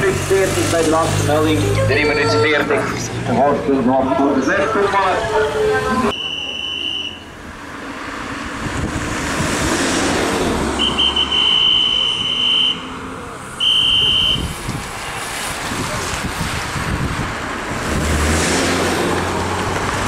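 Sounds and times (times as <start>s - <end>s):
high whistle blasts: 6.1s - 7.3s, 10.8s - 12.8s, 13.6s - 14.5s
car passing close by: 7.5s - 20.0s.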